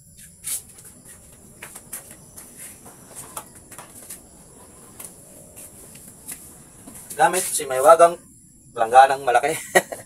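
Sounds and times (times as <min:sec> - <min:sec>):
footsteps on wet concrete: 0:00.5 - 0:07.5.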